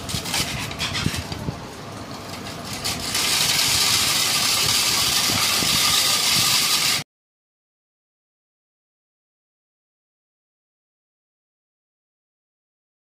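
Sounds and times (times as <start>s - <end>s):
loud steady hiss: 1.2s - 7.0s.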